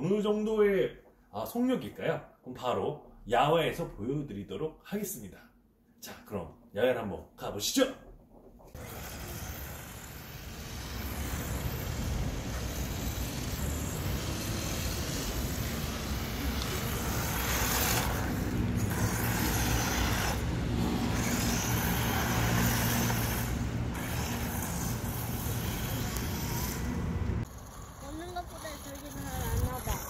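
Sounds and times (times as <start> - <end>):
rc car motor and tyres running: 8.7 - 30.0.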